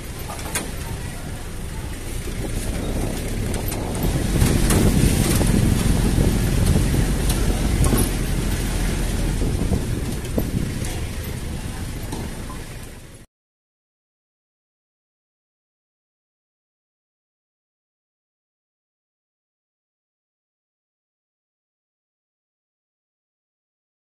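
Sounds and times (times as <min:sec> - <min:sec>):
vehicle engine and road rumble: 0:00.0 - 0:13.3.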